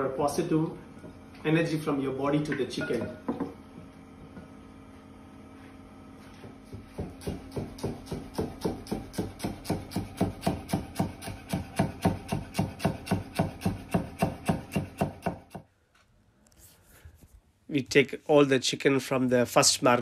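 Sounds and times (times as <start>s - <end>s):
knife chopping on cutting board: 6.7s - 15.6s.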